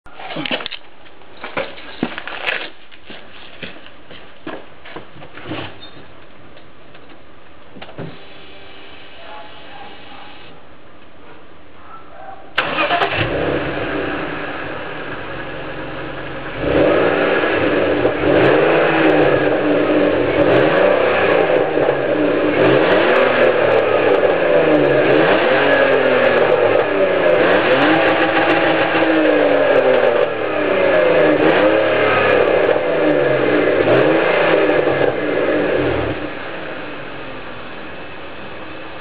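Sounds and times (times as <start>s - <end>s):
car engine revving: 12.6s - 38.9s.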